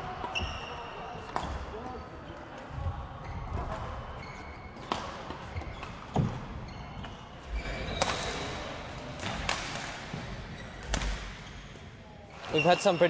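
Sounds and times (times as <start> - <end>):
shoes squeaking on court floor: 0.2 - 2.4, 3.2 - 9.4, 10.1 - 13.0
racket hitting shuttlecock: 10.8 - 11.4.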